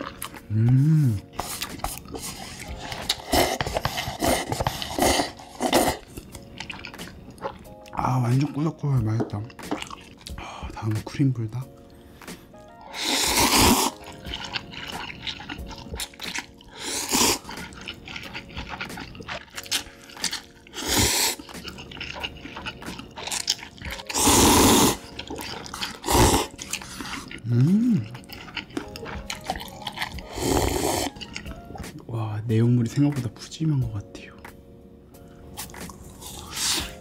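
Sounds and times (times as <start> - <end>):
person slurping noodles: 0.0 - 6.9, 12.8 - 31.4, 35.6 - 37.0
wet chewing: 0.0 - 31.9, 35.5 - 37.0.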